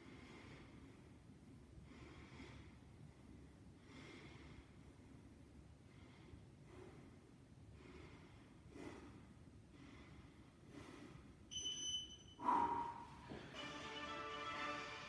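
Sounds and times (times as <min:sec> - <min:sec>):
heavy rhythmic breathing: 0:00.0 - 0:11.6, 0:12.3 - 0:14.5
high electronic beep: 0:11.5 - 0:12.4
loud voiced exhale: 0:12.4 - 0:13.3.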